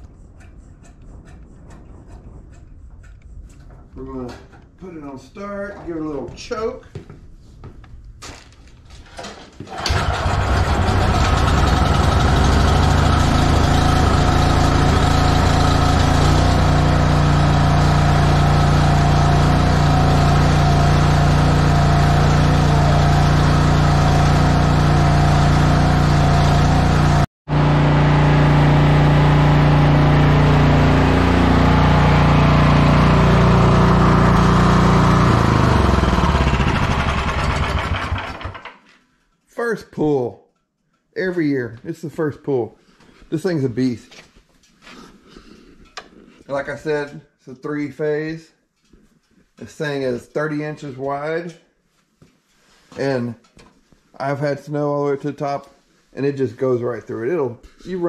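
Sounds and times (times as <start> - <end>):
snowblower engine starting and running: 9.7 - 38.9.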